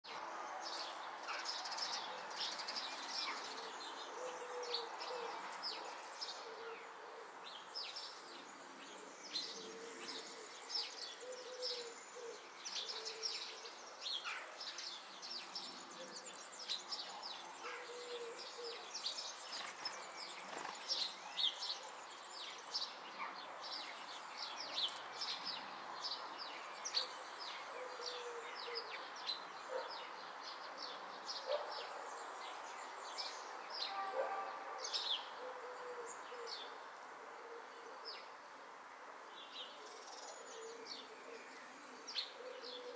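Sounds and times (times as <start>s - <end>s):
songbirds chirping: 0.0s - 42.9s
steady background hiss: 34.6s - 42.9s.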